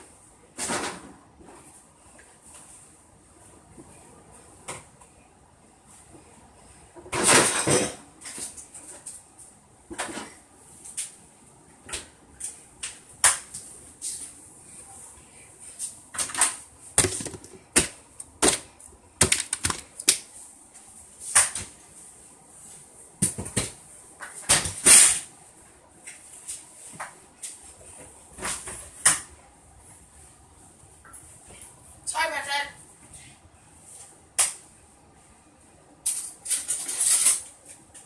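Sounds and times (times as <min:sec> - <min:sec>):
kitchen clicks and knocks: 0:07.0 - 0:08.5, 0:16.1 - 0:20.2.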